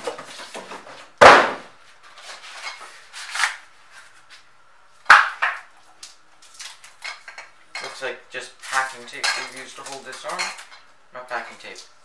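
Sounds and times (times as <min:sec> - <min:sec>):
cardboard rustling and scraping: 0:00.0 - 0:01.1.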